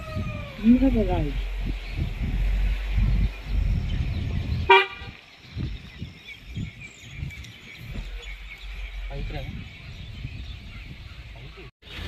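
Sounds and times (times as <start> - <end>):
birds chirping faintly: 0.6 - 11.7
footsteps on a dirt road: 5.0 - 8.8.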